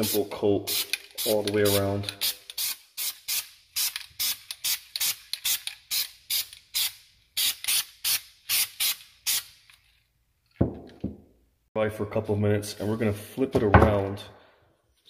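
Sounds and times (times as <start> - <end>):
spray paint can hissing: 0.0 - 9.6.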